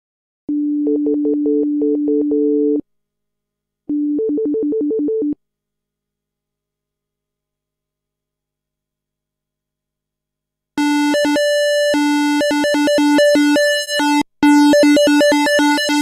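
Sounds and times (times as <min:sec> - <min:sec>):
synthesizer notes: 0:10.8 - 0:16.0.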